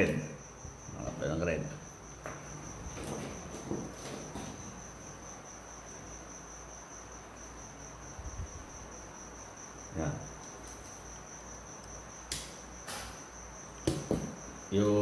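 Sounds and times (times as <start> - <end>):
high-pitched insect trill: 0.0 - 15.0
soft knock: 13.9 - 14.4.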